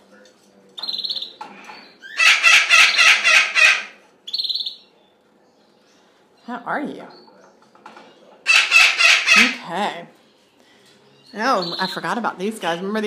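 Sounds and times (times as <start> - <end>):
parrot harsh squawk: 2.0 - 4.8, 8.4 - 9.7.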